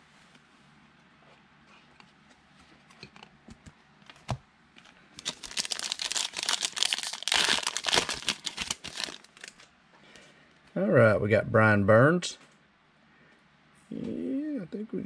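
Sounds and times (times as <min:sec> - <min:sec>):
foil wrapper tearing and crinkling: 0:05.2 - 0:09.7.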